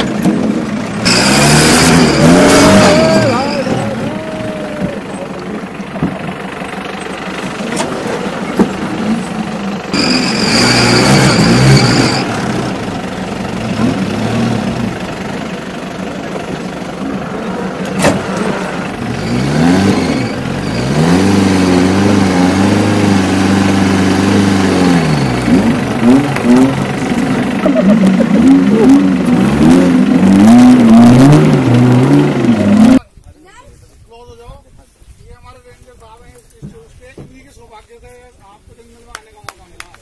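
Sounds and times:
jeep engine revving: 0.0 - 33.0
high steady whistle-like tone: 9.9 - 12.4.

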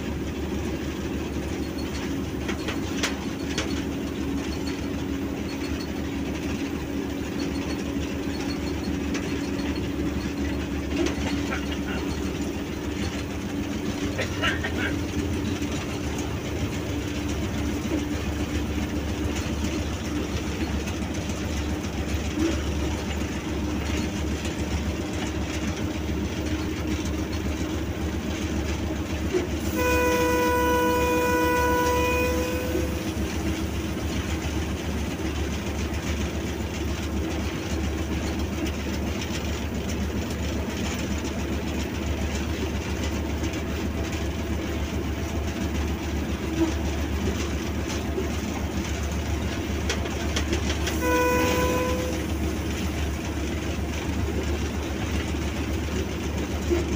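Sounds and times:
locomotive engine drone: 0.0 - 56.9
wheel and rail noise: 0.0 - 56.9
locomotive horn: 29.6 - 33.2, 50.8 - 52.6.

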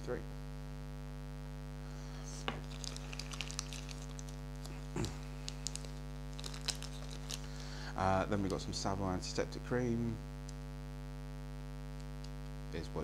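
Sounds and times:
electrical mains hum: 0.0 - 13.0
plastic wrapper crinkling: 2.3 - 8.8.

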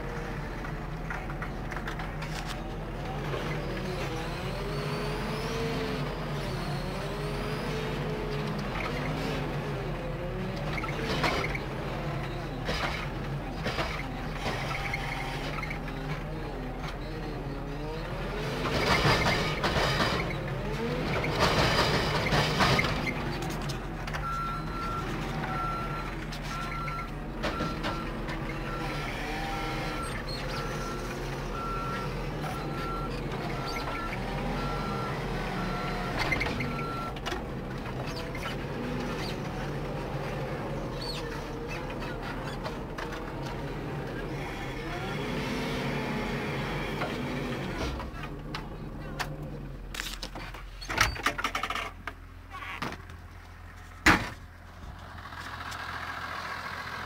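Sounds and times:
diesel engines running: 0.0 - 57.0
reversing alarm beeping: 24.2 - 37.2.

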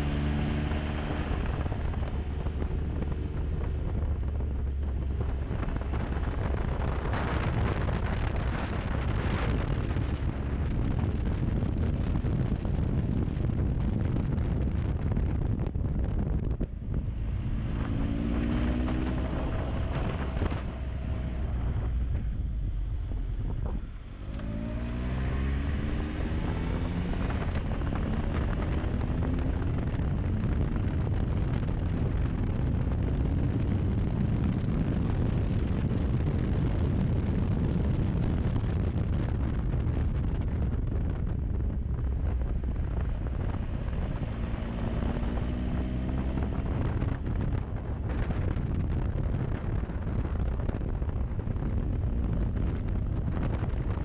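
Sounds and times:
motorcycle engine accelerating: 0.0 - 54.0
wind rush on microphone: 0.0 - 54.0.

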